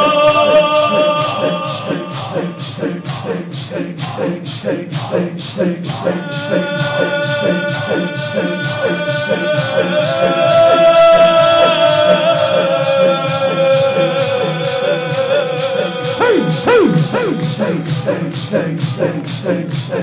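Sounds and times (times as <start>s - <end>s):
man singing long note: 0.0s - 2.6s, 6.1s - 18.3s.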